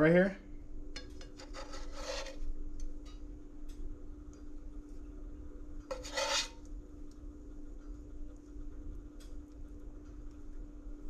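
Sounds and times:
steady low hum: 0.0 - 11.0
spatula scraping frying pan: 1.0 - 2.5, 5.9 - 6.7.

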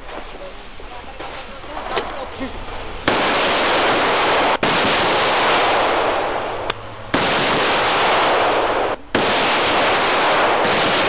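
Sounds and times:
automatic gunfire: 3.1 - 6.5, 7.1 - 11.0.

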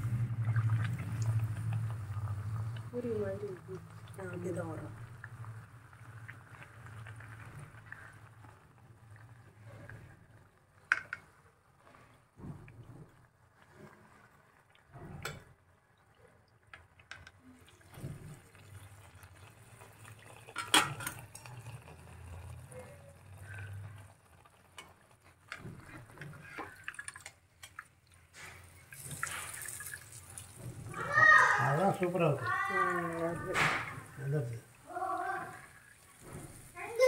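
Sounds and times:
oil dripping into pan: 0.0 - 9.4, 14.7 - 34.9
deep-frying in oil: 0.0 - 37.0.

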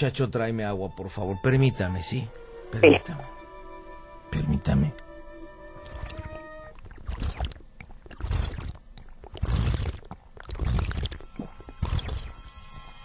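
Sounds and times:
man gulping water: 2.8 - 3.0, 5.8 - 12.3.

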